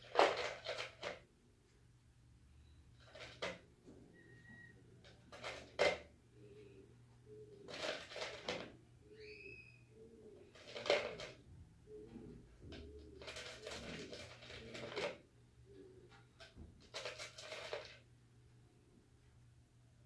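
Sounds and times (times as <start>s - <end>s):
faint bird calls: 9.0s - 10.6s
pebbles rattling in a plastic jar: 10.6s - 11.4s, 13.2s - 15.2s, 16.8s - 18.0s.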